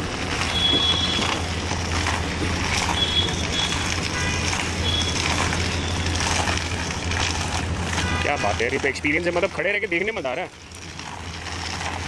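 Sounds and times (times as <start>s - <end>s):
low machine hum: 0.0s - 12.0s
street noise: 0.0s - 12.0s.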